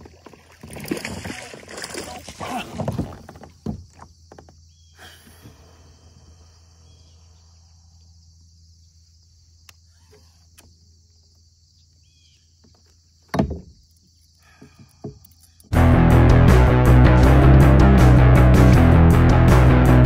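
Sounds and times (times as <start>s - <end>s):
low hum: 15.7s - 20.0s.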